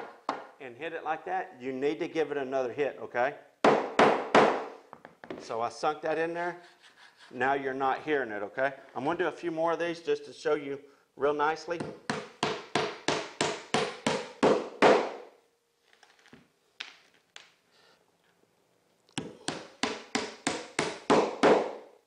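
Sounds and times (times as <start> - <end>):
hammer driving nails: 11.8 - 15.2, 19.2 - 21.9.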